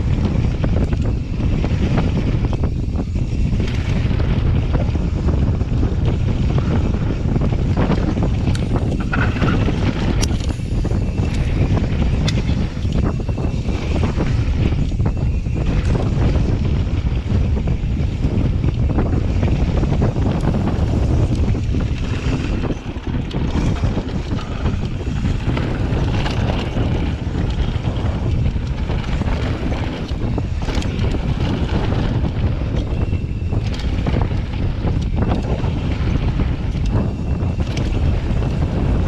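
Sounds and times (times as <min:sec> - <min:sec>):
bike knocks and rattles: 0:00.0 - 0:39.0
wind buffeting microphone: 0:00.0 - 0:39.0
tyres rumbling over dirt: 0:15.6 - 0:39.0.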